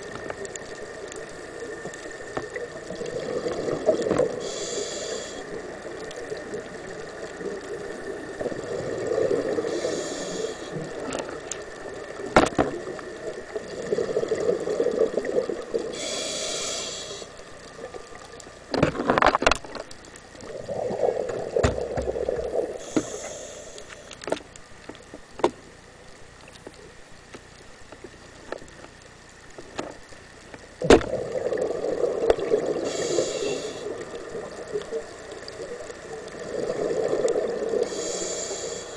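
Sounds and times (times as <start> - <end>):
diver breathing through regulator: 4.4 - 5.6, 9.6 - 11.0, 15.9 - 17.4, 22.8 - 24.2, 32.7 - 34.0, 37.7 - 38.9.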